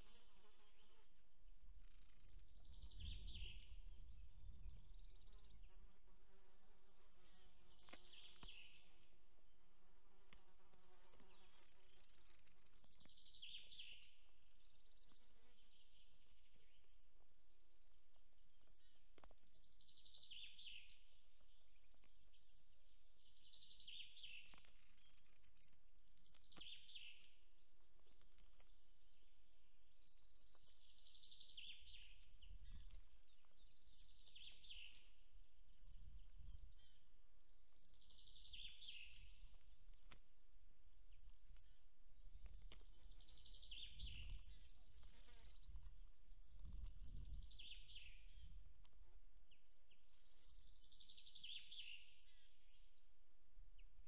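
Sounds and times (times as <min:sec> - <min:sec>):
songbird singing: 0:00.0 - 0:54.0.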